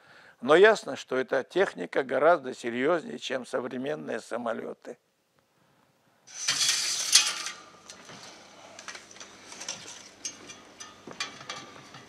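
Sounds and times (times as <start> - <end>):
projector parts clicking and clattering: 6.3 - 12.0.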